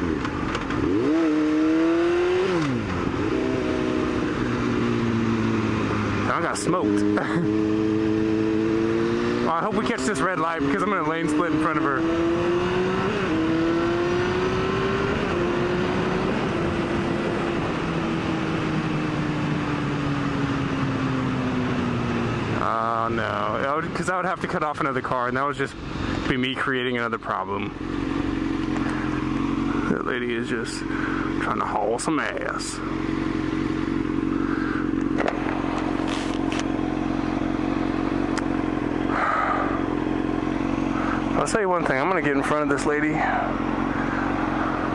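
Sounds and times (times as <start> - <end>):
motorcycle engine running: 0.0 - 44.9
motorcycle engine idling: 27.1 - 44.9.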